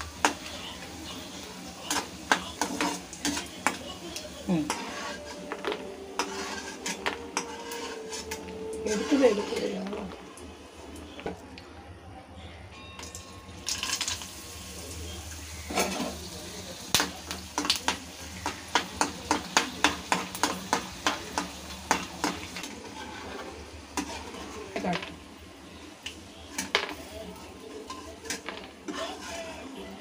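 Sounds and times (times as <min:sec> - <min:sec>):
food frying in hot oil: 0:00.0 - 0:05.2, 0:13.6 - 0:30.0
spatula scraping and clinking pan: 0:01.8 - 0:03.8, 0:04.5 - 0:10.1, 0:15.7 - 0:16.2, 0:17.5 - 0:25.2, 0:26.5 - 0:30.0.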